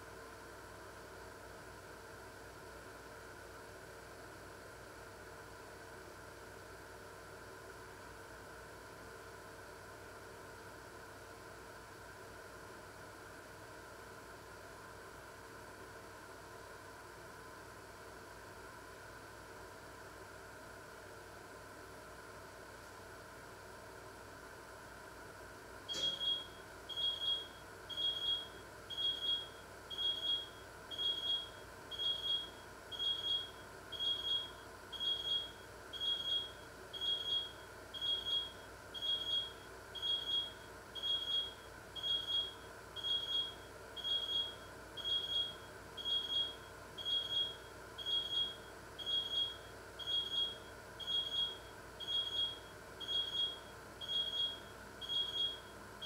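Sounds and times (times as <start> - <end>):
electronic alarm beeping: 25.9 - 55.7.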